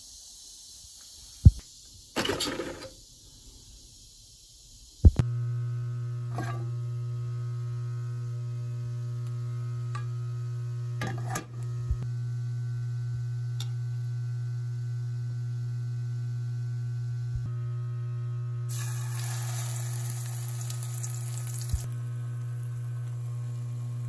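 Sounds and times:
low electrical hum: 5.1s - 24.0s.

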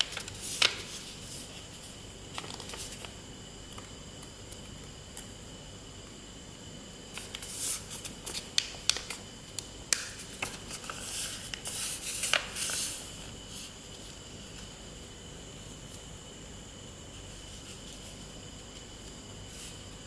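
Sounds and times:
paper crinkling and crackling: 0.0s - 3.8s, 10.0s - 13.0s.

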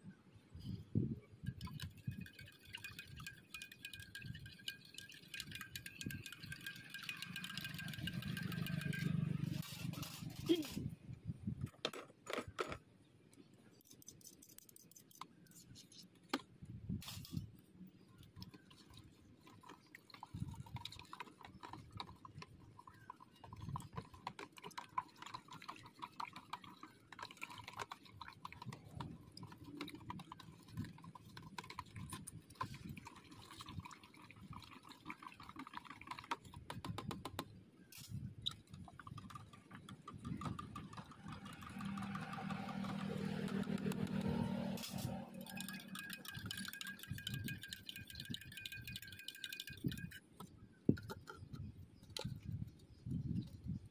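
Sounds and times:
liquid pouring and dripping: 1.4s - 9.4s, 18.2s - 37.2s, 38.5s - 50.2s
small clicks and clinks: 1.5s - 10.8s, 36.1s - 52.6s.

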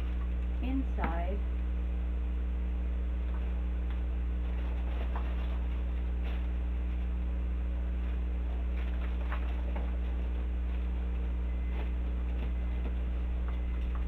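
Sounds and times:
electrical mains hum: 0.0s - 14.0s
paper lantern rustling: 4.4s - 7.2s, 7.9s - 14.0s.

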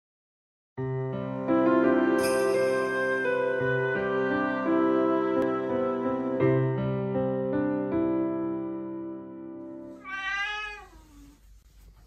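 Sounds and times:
sustained keyboard music: 1.1s - 9.8s.

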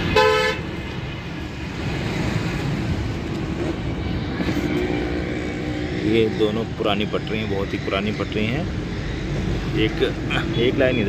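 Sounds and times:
traffic rumble: 0.0s - 11.0s
vehicle engine hum: 0.0s - 11.0s.

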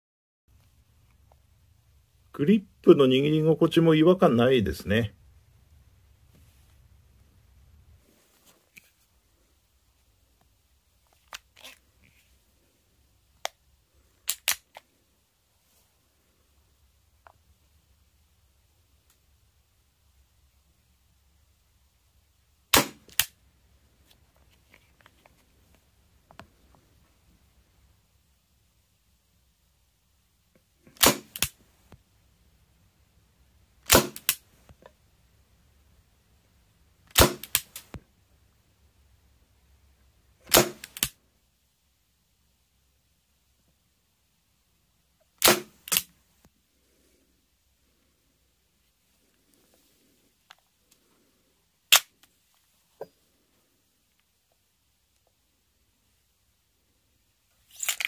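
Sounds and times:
gas revolver action clicking: 14.3s - 14.6s
loud revolver snaps: 14.3s - 14.6s, 31.0s - 31.6s, 33.8s - 34.4s, 37.1s - 38.0s, 40.5s - 41.2s, 45.4s - 46.1s.

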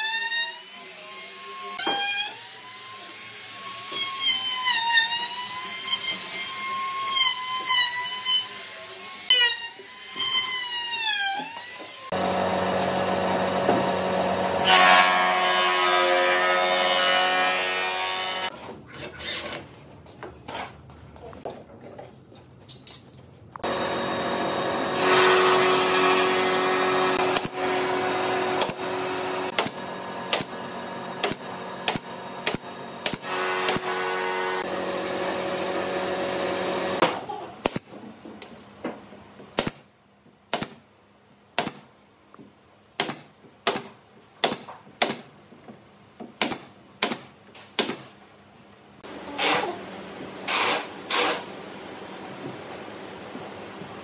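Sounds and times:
power tool motor running: 12.1s - 14.7s, 23.6s - 37.0s.

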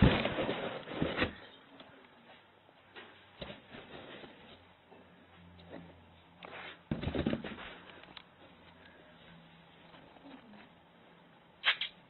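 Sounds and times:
faint low hum: 0.0s - 11.6s.

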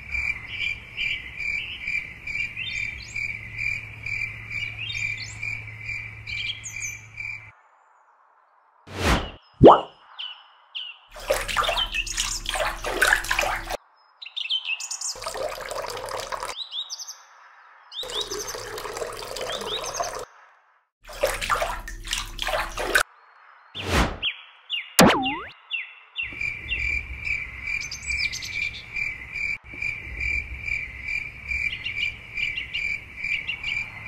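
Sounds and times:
birds chirping: 9.2s - 15.6s, 17.9s - 20.3s
water pouring into shallow water: 11.2s - 13.8s, 15.2s - 16.6s, 18.0s - 20.3s, 21.0s - 23.0s.

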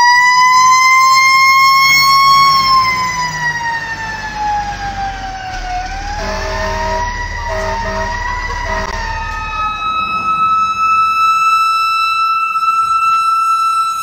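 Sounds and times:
fire truck siren wailing: 0.0s - 14.0s
steady high siren tone: 0.0s - 14.0s
diesel engine rumbling: 1.3s - 13.0s
air horn blasts: 6.1s - 11.9s.

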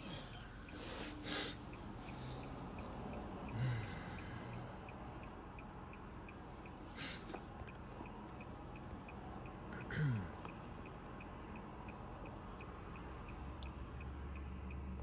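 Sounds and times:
person sniffing sharply: 0.8s - 1.6s, 7.0s - 7.3s
faint regular ticking: 1.6s - 15.0s.

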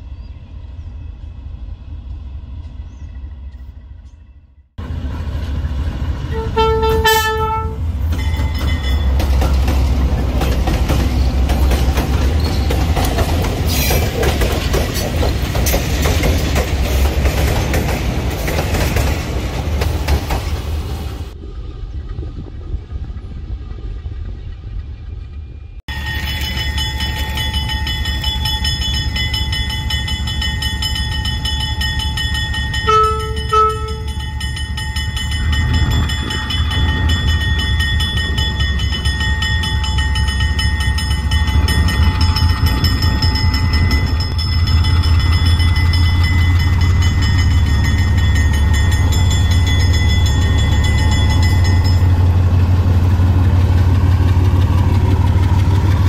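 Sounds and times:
locomotive engine rumble: 0.0s - 56.0s
train horn toots: 6.3s - 7.9s, 32.8s - 34.2s.

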